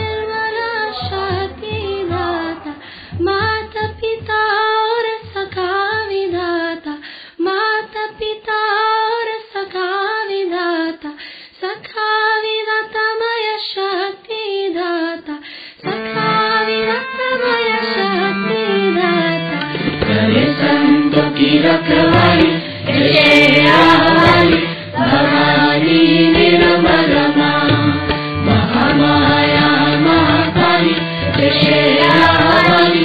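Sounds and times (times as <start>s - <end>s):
low regular beat: 19.6s - 33.0s
woman singing solo: 31.4s - 33.0s.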